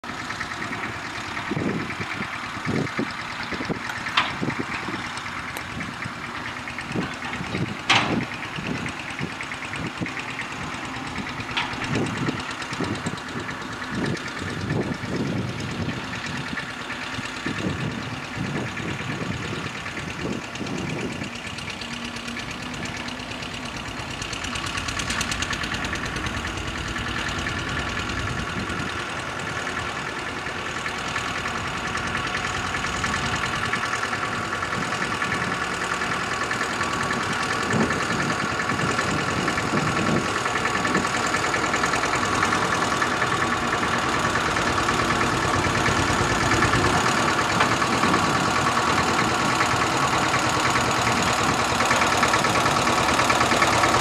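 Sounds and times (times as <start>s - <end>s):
diesel locomotive engine drone: 0.0s - 54.0s
knocks and metal clanks: 3.9s - 4.9s, 7.0s - 8.5s, 11.5s - 12.4s.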